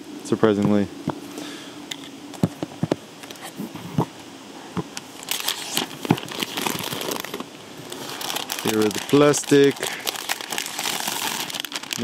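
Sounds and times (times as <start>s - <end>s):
plastic wrapping crinkling: 5.1s - 12.0s.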